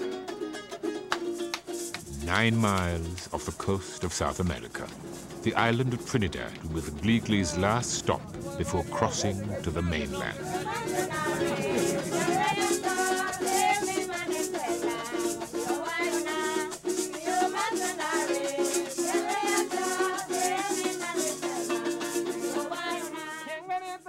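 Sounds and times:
shaker rhythm: 0.0 - 24.0
wavering melody: 1.9 - 23.1
repeated low note: 2.0 - 3.4.

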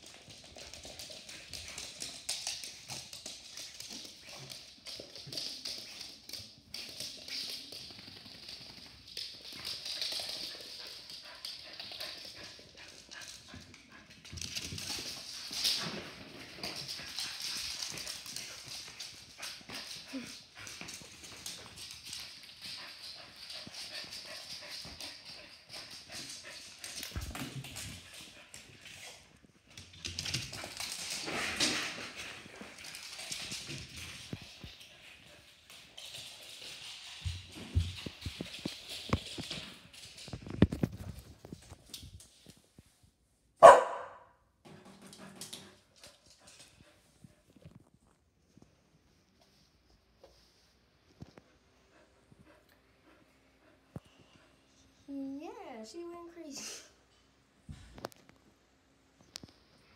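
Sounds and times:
dog claws scrabbling on wood floor: 0.0 - 42.9.

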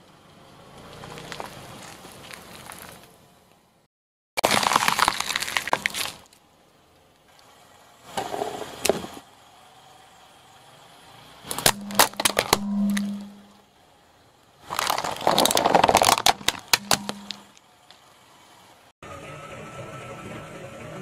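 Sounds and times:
tyre crunching pepper: 4.4 - 6.3, 14.7 - 17.6
soft crackle: 4.4 - 6.5, 14.6 - 18.0
low steady hum: 11.4 - 18.9
plastic cracking and snapping: 14.7 - 17.4.

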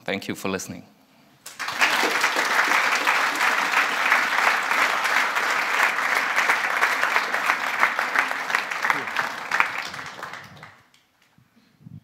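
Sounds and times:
audience applauding: 1.4 - 11.0.

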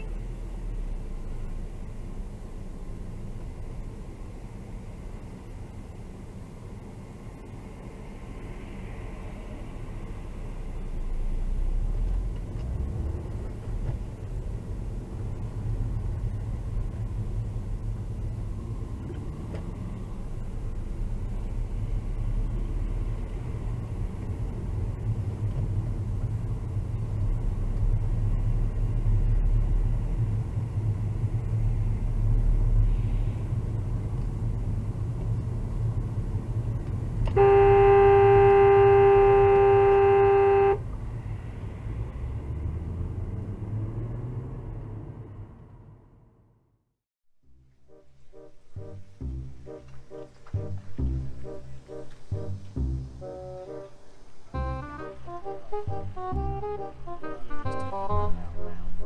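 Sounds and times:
car engine rumble: 0.0 - 46.7, 47.4 - 59.0
road noise: 0.0 - 59.0
car horn blast: 37.3 - 40.8.

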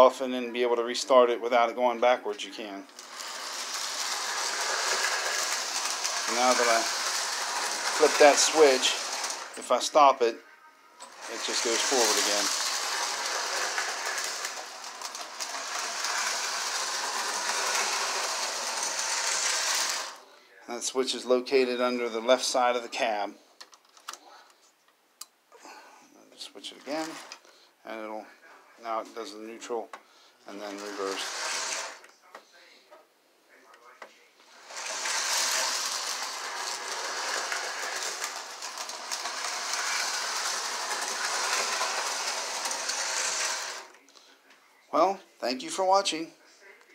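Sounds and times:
toy train motor whirring: 2.9 - 10.0, 11.0 - 20.2, 26.8 - 27.4, 30.5 - 32.1, 34.5 - 44.0
wheels rattling over rails: 3.0 - 9.7, 11.0 - 20.2, 30.5 - 32.0, 34.6 - 43.9.

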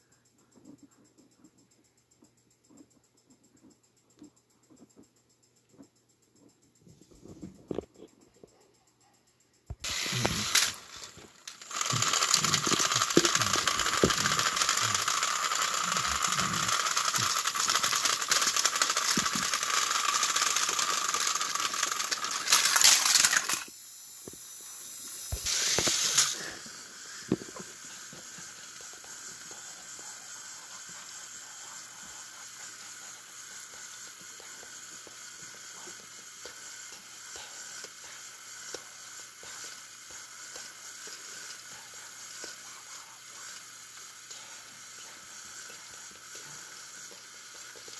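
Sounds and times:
clicks and rattles: 9.7 - 23.7
toy train motor whirring: 9.7 - 47.9.

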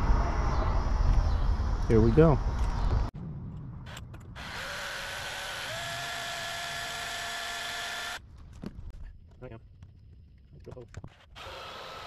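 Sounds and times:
cordless drill whining: 4.4 - 8.2, 11.4 - 12.0.

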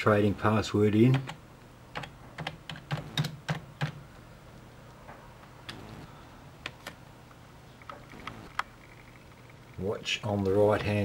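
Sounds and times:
keyboard keys tapping: 2.0 - 4.0.

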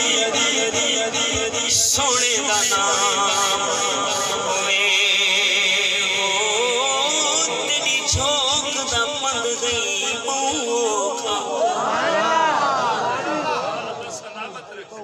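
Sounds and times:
man singing devotional song: 0.0 - 11.7.

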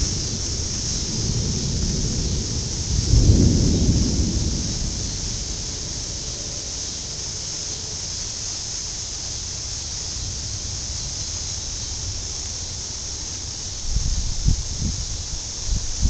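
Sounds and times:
wind rumble on microphone: 0.0 - 7.4, 13.6 - 16.0
rain hiss: 0.0 - 16.0.

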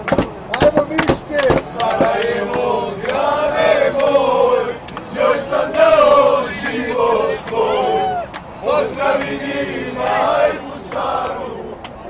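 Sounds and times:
hand claps: 0.0 - 3.2, 3.9 - 4.2, 4.8 - 5.1, 9.1 - 9.4, 11.8 - 12.0
men chanting in unison: 1.0 - 11.8.

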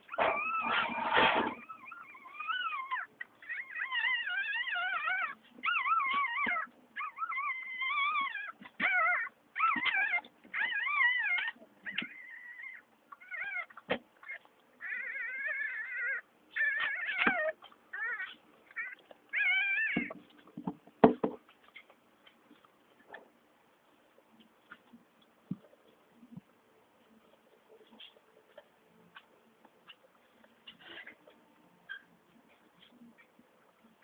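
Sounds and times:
puppies crying: 0.0 - 20.3.

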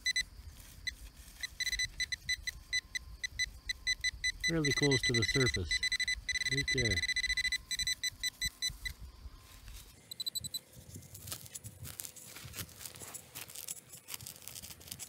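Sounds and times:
metal detector beeping: 0.0 - 9.1, 10.0 - 10.6
digger crunching into dry turf: 10.7 - 15.0.

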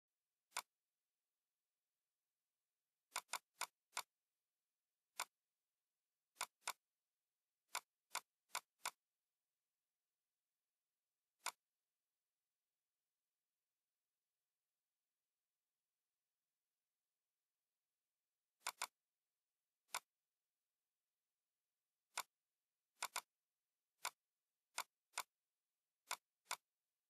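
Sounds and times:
computer mouse clicks: 0.5 - 0.8, 3.1 - 4.2, 5.1 - 5.4, 6.3 - 6.9, 7.7 - 9.1, 11.4 - 11.7, 18.6 - 19.0, 19.8 - 20.2, 22.1 - 23.4, 24.0 - 25.4, 26.0 - 26.8.

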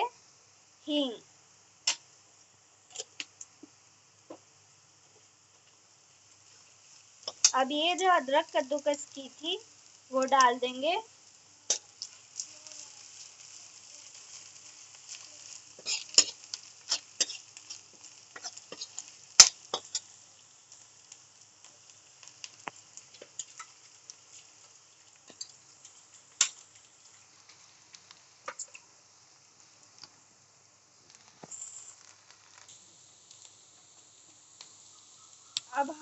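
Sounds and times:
onions frying in oil: 0.0 - 36.0
metal spatula scraping pan: 15.8 - 17.7.

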